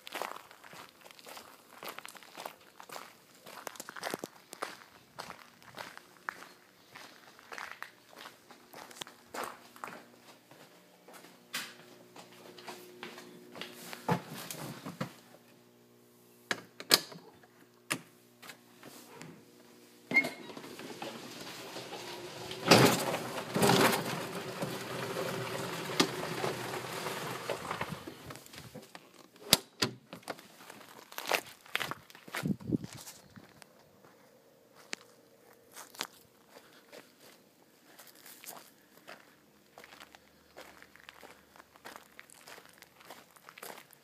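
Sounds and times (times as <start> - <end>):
tyre noise rushing: 20.5 - 28.4.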